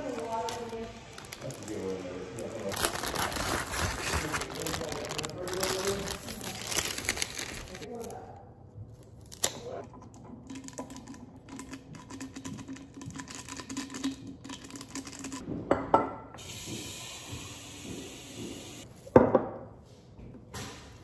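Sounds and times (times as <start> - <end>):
paper packet crackling: 0.0 - 8.2.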